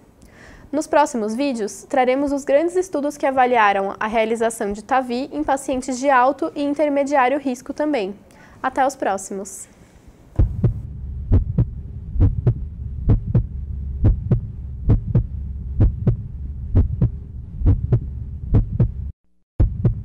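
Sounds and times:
continuous low hum: 0:00.0 - 0:19.2
heartbeat thumps: 0:10.3 - 0:20.0.

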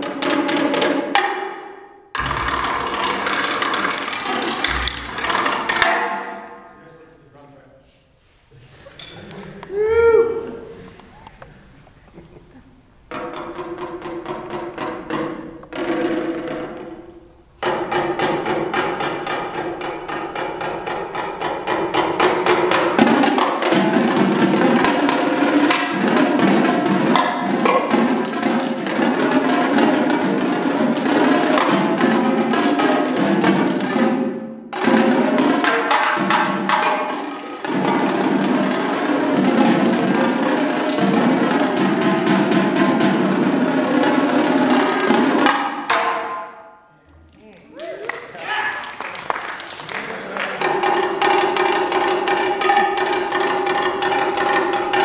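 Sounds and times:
marching tenor drums: 0:02.2 - 0:06.4, 0:17.6 - 0:46.2, 0:50.6 - 0:55.0.

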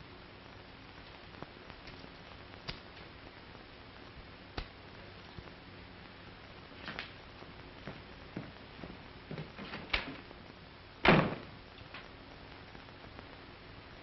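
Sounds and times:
door shutting with a thud: 0:11.0 - 0:11.5.

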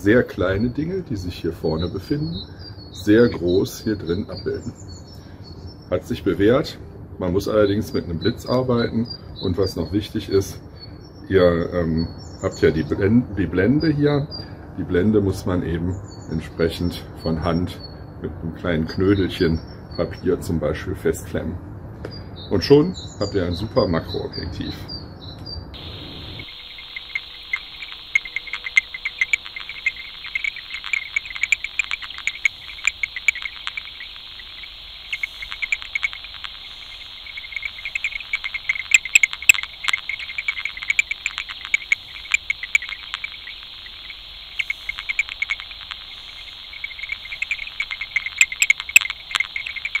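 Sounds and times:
insects chirping: 0:00.0 - 0:06.7, 0:07.3 - 0:18.2, 0:25.6 - 0:50.0
steady high hiss: 0:25.8 - 0:50.0.

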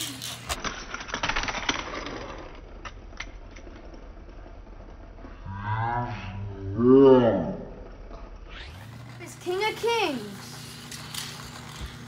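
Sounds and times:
toy car landing clicks: 0:00.0 - 0:03.4
toy car rattling down plastic track: 0:00.0 - 0:04.9, 0:08.7 - 0:12.0.

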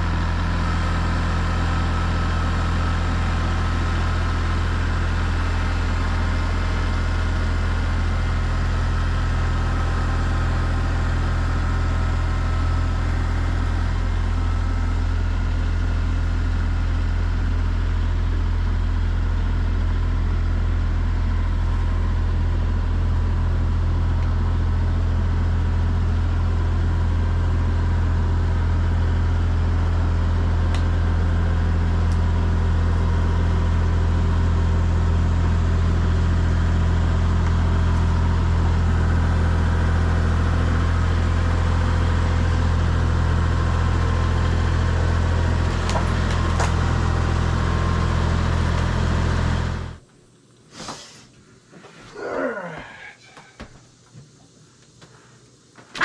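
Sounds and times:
tractor diesel engine running: 0:00.0 - 0:50.1.

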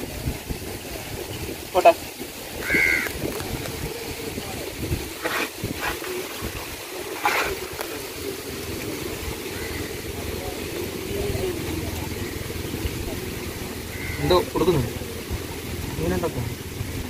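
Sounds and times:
water moving around canoe: 0:00.0 - 0:17.0
low steady rumble: 0:03.5 - 0:17.0.

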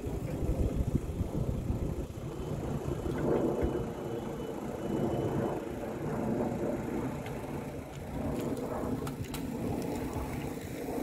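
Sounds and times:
wind buffeting microphone: 0:00.0 - 0:11.0
bicycle clicks: 0:07.2 - 0:10.8.

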